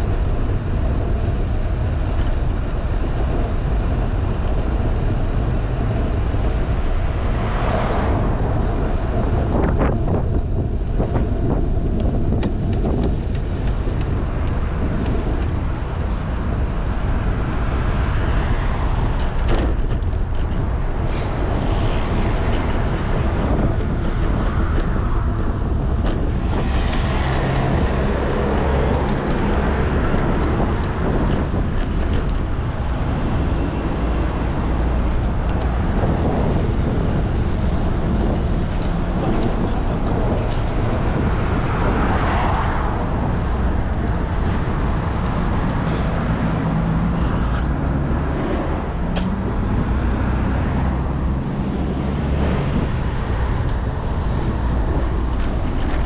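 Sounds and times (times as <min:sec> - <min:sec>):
tyre and road noise: 0:00.0 - 0:56.0
wind buffeting microphone: 0:00.0 - 0:56.0.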